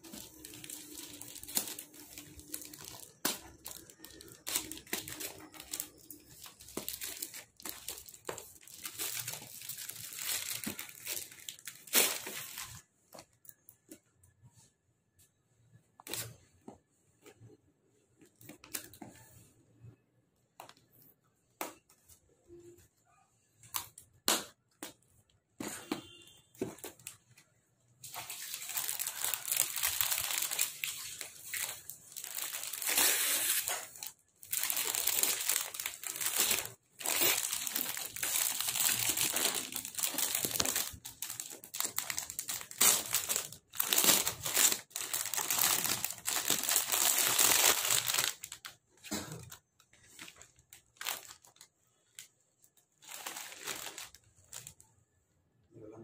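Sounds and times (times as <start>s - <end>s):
plastic packaging crinkling: 0.0s - 13.6s, 28.0s - 54.9s.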